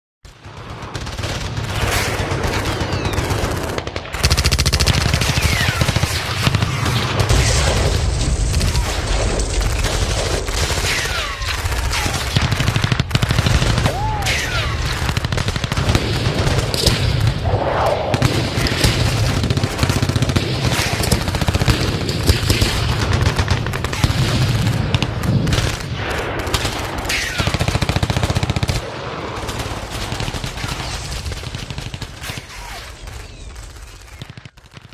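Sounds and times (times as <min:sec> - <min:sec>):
gunfire: 0:00.3 - 0:34.9
machine-gun bursts: 0:00.8 - 0:07.3.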